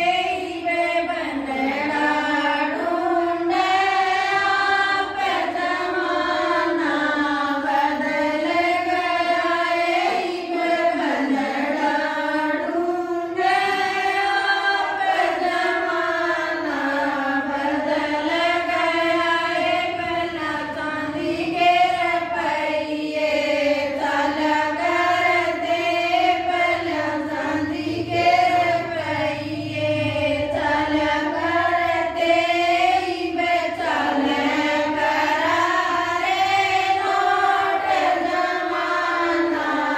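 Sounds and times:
women singing devotional song: 0:00.0 - 0:39.9.

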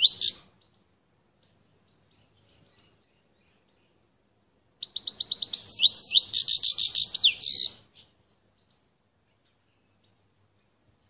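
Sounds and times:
canary singing: 0:00.0 - 0:00.8, 0:04.8 - 0:08.1.

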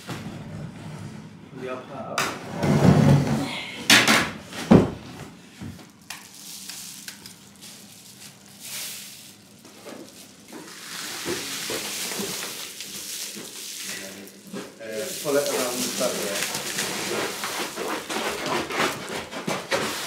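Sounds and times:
bubble wrap crinkling: 0:05.8 - 0:20.0.

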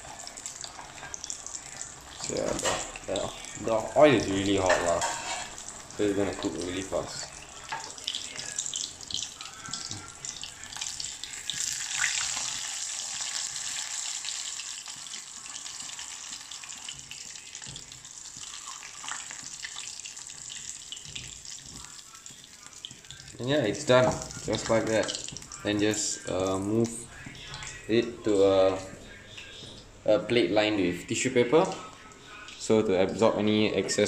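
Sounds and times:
fish sizzling in hot oil: 0:00.0 - 0:27.0.

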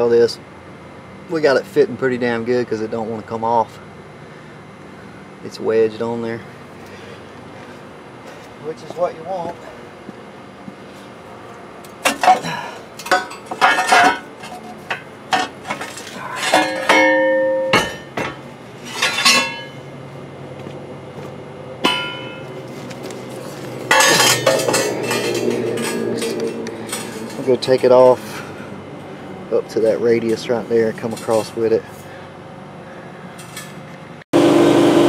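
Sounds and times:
metal clanks and knocks: 0:12.0 - 0:19.8, 0:21.8 - 0:22.6, 0:23.4 - 0:27.9
metal scraping: 0:13.1 - 0:19.8, 0:21.8 - 0:28.8.

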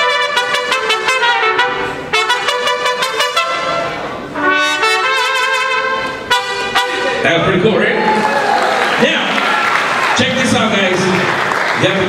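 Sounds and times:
trumpets playing in harmony: 0:00.0 - 0:08.2.

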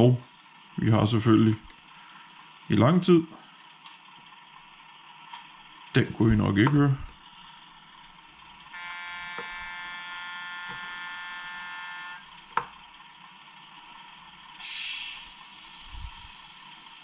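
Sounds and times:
buzzer-like electronic tone: 0:08.7 - 0:12.3
short hiss: 0:14.6 - 0:17.0.

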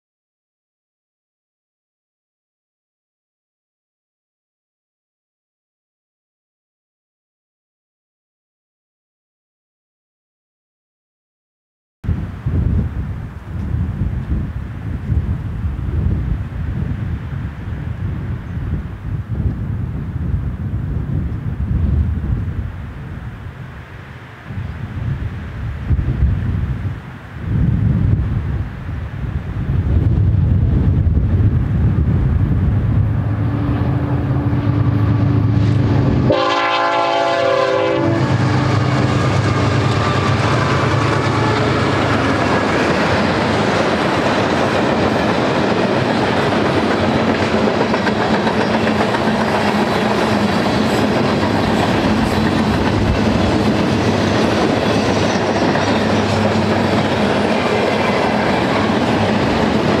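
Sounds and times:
diesel locomotives running past: 0:12.1 - 1:00.0
locomotive horn blast: 0:33.2 - 0:42.5.

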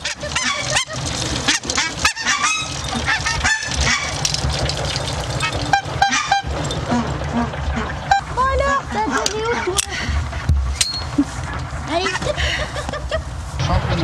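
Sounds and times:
young geese honking: 0:00.0 - 0:04.4, 0:05.3 - 0:10.4
steady low rumble: 0:00.0 - 0:14.0.

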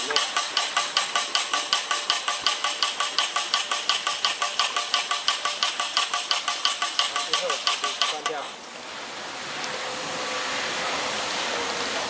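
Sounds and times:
diaphragm pump clicking and exhausting: 0:00.0 - 0:08.6.

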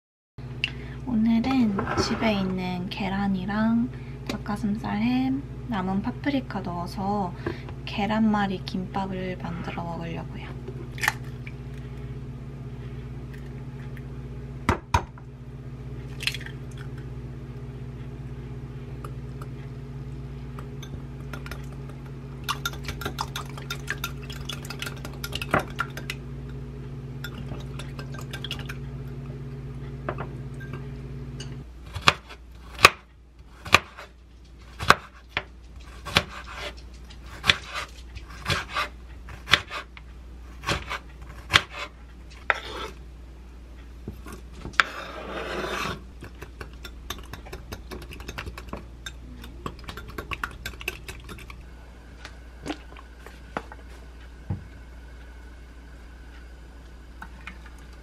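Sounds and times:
low hum: 0:00.4 - 0:58.0
whisk clinking in glass cup: 0:22.5 - 0:26.0
knife chopping on wooden board: 0:31.9 - 0:33.0, 0:33.6 - 0:34.1, 0:34.8 - 0:35.2, 0:35.9 - 0:36.8, 0:37.4 - 0:39.9, 0:40.6 - 0:41.9
knife scraping board: 0:35.8 - 0:40.0, 0:40.6 - 0:43.0, 0:44.2 - 0:46.1.

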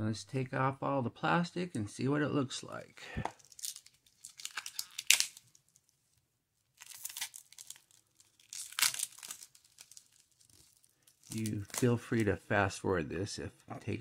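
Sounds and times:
plastic film peeling and crackling: 0:03.2 - 0:12.5.

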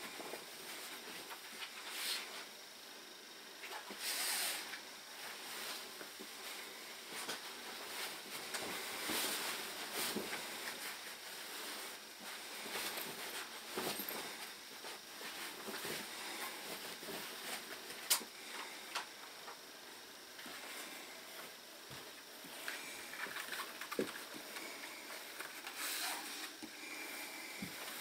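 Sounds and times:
leather clothing rustling and creaking: 0:05.6 - 0:18.0.

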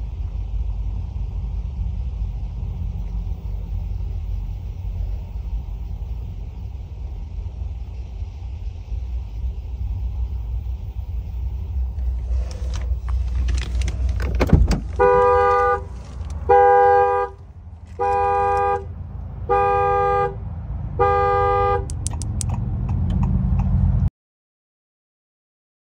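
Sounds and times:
low rumble: 0:00.0 - 0:21.0
car horn blasts: 0:14.8 - 0:20.4, 0:21.0 - 0:22.0.

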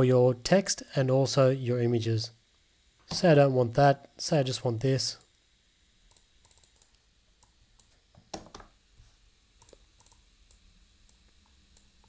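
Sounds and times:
keyboard and mouse clicks: 0:06.1 - 0:07.0, 0:09.6 - 0:10.2.

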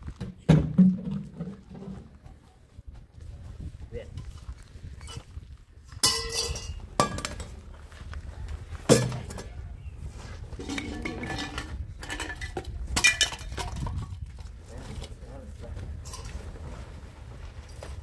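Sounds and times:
pots and dishes clinking: 0:06.0 - 0:07.3.

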